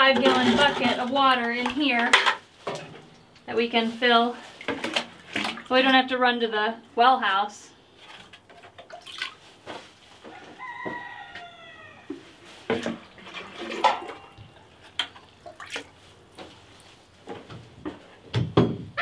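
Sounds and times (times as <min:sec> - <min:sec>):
water sloshing and dripping: 0:00.1 - 0:06.2, 0:08.0 - 0:10.3, 0:12.1 - 0:17.5
rooster crowing: 0:10.2 - 0:12.1.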